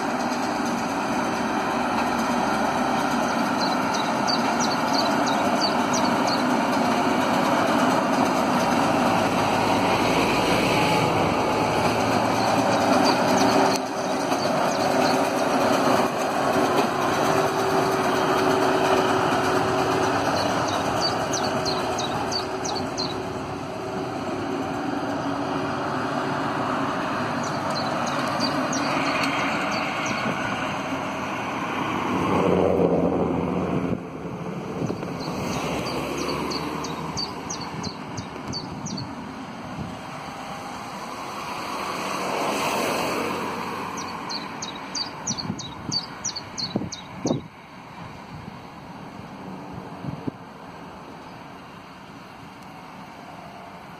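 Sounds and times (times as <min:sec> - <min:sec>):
tractor and baler running: 0:00.0 - 0:53.9.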